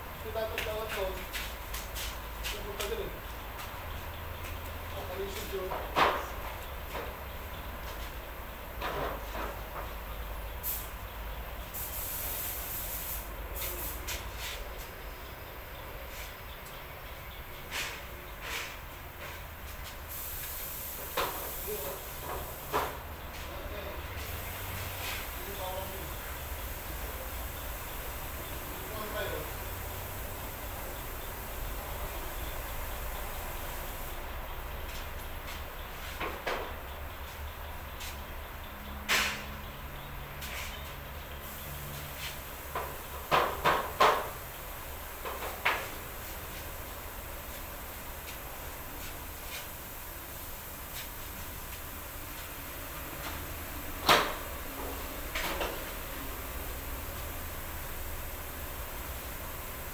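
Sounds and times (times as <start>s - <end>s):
background hiss: 10.2s - 36.4s, 40.4s - 59.9s.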